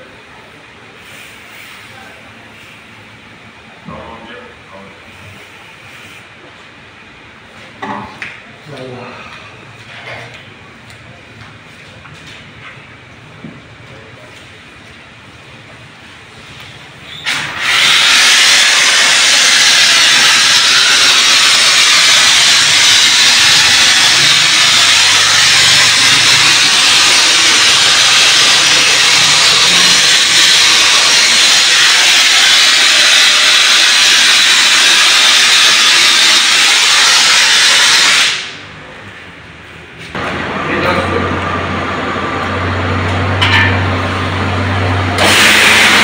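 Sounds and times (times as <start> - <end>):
pressure washer jet hissing: 17.2 - 38.6, 44.5 - 46.0.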